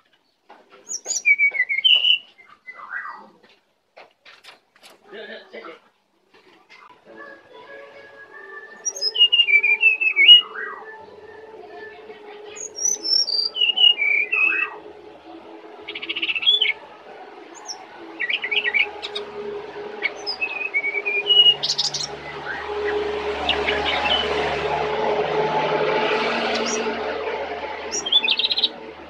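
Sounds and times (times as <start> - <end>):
bird singing whistled notes: 0.9 - 3.2, 8.3 - 11.9, 12.6 - 14.8, 15.9 - 16.8, 17.6 - 19.2, 20.0 - 22.7, 27.9 - 28.7.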